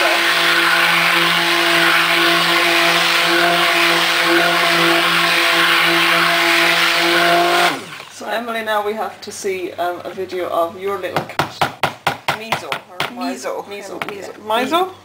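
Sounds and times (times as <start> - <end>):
stick blender motor humming: 0.0 - 8.3.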